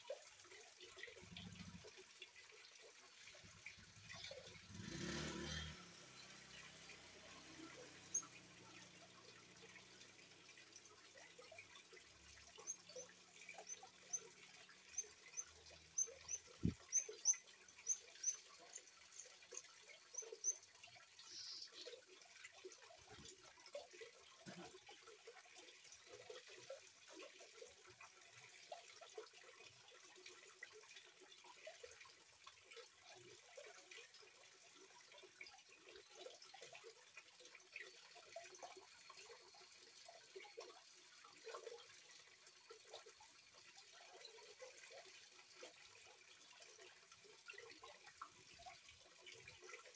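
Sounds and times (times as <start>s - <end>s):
trickle of running water: 0.0s - 49.9s
bird chirping: 14.9s - 18.4s, 21.2s - 21.9s.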